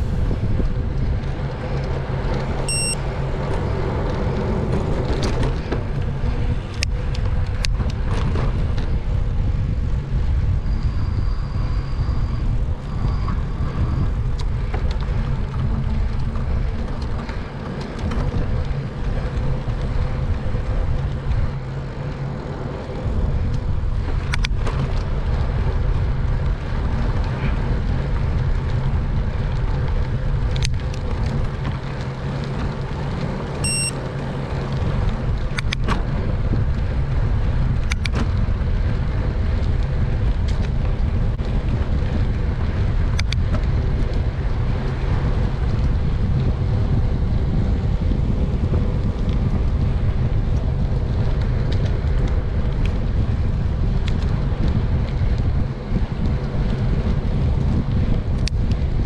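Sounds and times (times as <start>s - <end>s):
bicycle tyre and road noise: 0.0s - 59.0s
wind rumble on microphone: 0.0s - 59.0s
short high beep: 2.7s - 3.0s, 33.6s - 34.0s.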